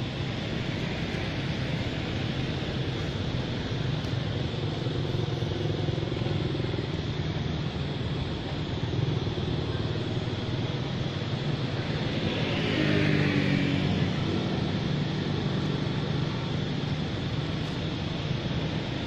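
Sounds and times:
traffic hum: 0:00.0 - 0:19.0
vehicle passing: 0:11.8 - 0:16.0.

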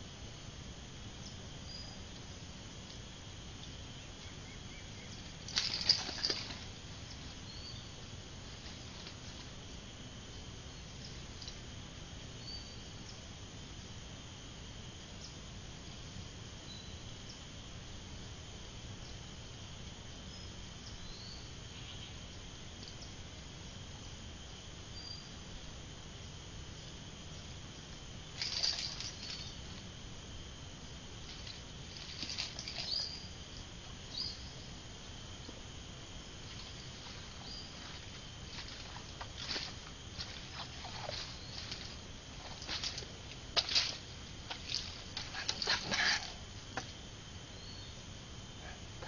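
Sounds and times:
insect buzz: 0:00.0 - 0:49.0
low outdoor rumble: 0:00.0 - 0:49.0
high-pitched insect chirring: 0:26.7 - 0:29.8, 0:31.2 - 0:35.5, 0:36.5 - 0:46.9.

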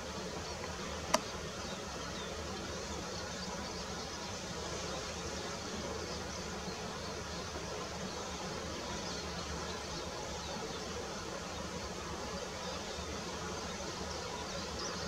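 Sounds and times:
outdoor background hiss: 0:00.0 - 0:15.0
sharp click: 0:01.1 - 0:01.3.

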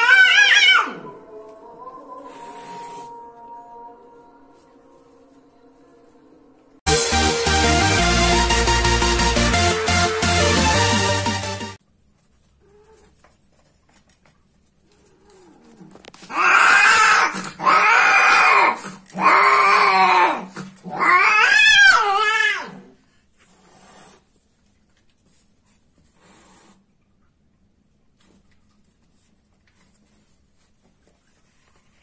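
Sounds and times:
cat yowling: 0:00.0 - 0:01.2, 0:15.2 - 0:22.9.

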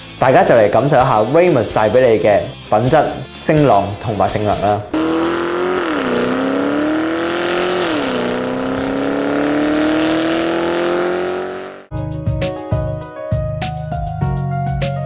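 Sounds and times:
music: 0:00.0 - 0:05.7, 0:11.9 - 0:15.0
car engine revving under load: 0:04.9 - 0:11.9.

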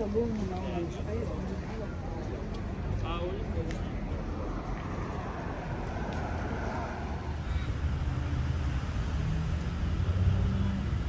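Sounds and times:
cars driving past: 0:03.1 - 0:11.0.

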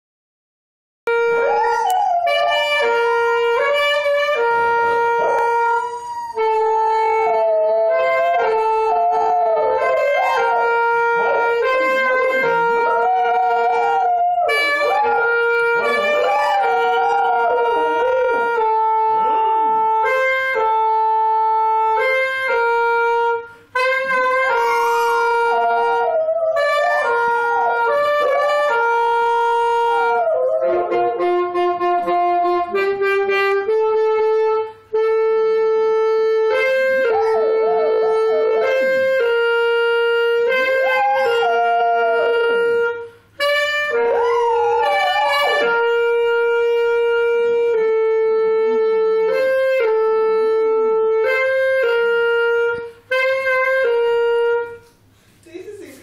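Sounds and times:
wind instrument slow tune: 0:01.1 - 0:56.0
dog howling: 0:01.4 - 0:04.3, 0:05.1 - 0:19.8, 0:24.6 - 0:31.2, 0:37.0 - 0:39.2, 0:40.4 - 0:43.1, 0:43.9 - 0:46.2.

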